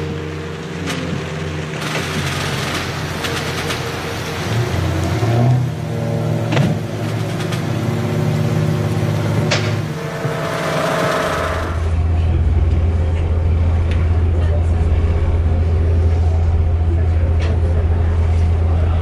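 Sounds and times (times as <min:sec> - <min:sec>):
heavy rain: 0:00.0 - 0:14.3
low droning hum: 0:00.0 - 0:19.0.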